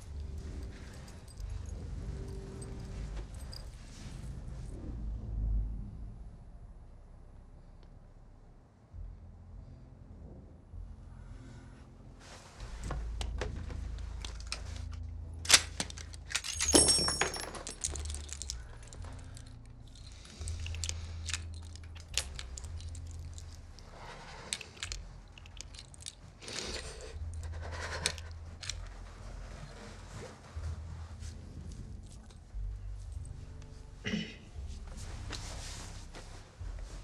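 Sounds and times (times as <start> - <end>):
jingling clatter: 0.0 - 4.4, 15.5 - 29.0
low rumble: 0.0 - 37.0
small metallic clinks: 14.2 - 28.9.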